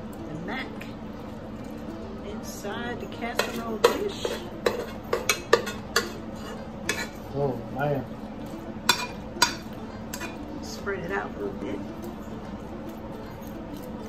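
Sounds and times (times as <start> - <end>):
metal spoon scraping a pan: 3.2 - 7.3, 8.9 - 10.8.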